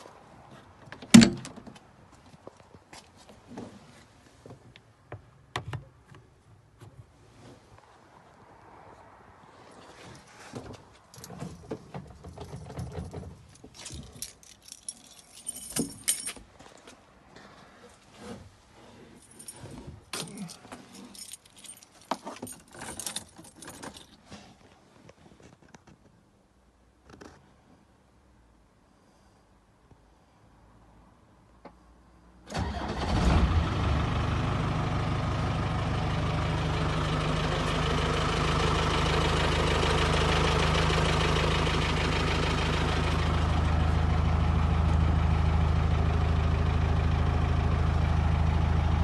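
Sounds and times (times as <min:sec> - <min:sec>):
keys jangling: 0:12.4 - 0:16.4, 0:19.2 - 0:24.2.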